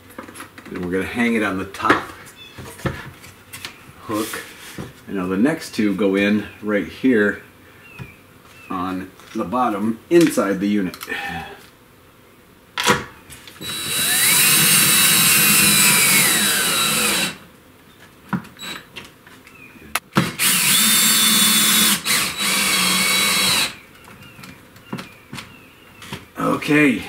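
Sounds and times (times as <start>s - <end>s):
cordless drill motor whine: 13.6s - 17.4s, 18.6s - 18.9s, 20.2s - 23.8s.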